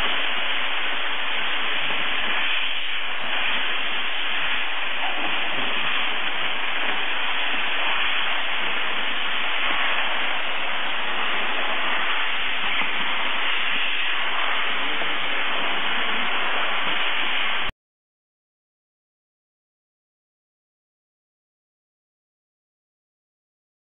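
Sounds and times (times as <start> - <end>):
steam cleaner hissing: 0.0 - 17.7.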